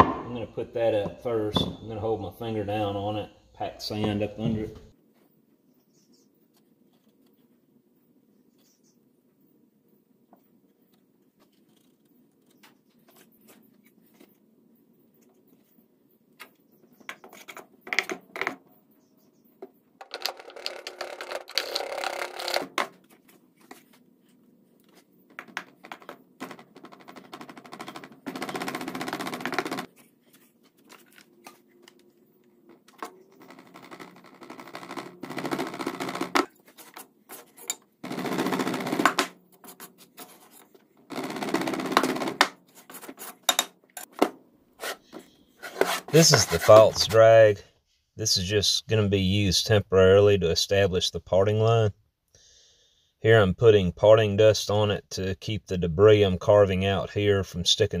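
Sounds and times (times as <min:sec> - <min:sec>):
knocks: 0:00.0 - 0:00.4
sand scraping and rustling: 0:45.6 - 0:47.5.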